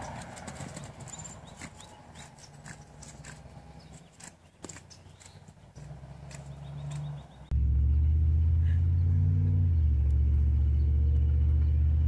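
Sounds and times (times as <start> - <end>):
hooves on soft dirt: 0.0 - 7.3
faint low rumble: 7.5 - 12.0.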